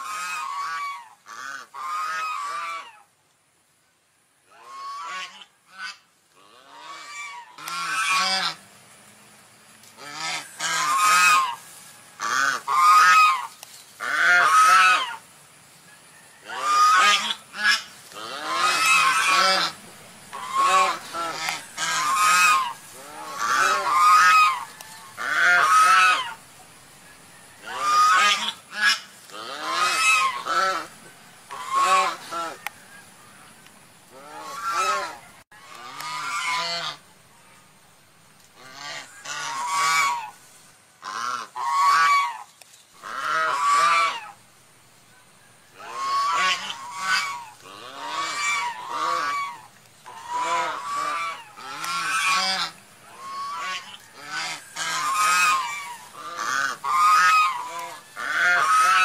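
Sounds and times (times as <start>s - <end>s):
swan honking: 4.5s - 8.6s, 10.0s - 15.3s, 16.4s - 26.4s, 27.6s - 32.7s, 34.1s - 37.0s, 38.6s - 40.4s, 41.0s - 44.4s, 45.8s - 59.0s.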